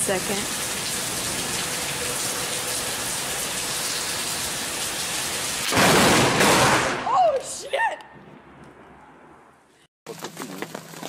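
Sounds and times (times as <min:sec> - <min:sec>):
heavy rain pouring: 0:00.0 - 0:06.2
loud thunderclap: 0:05.7 - 0:07.1.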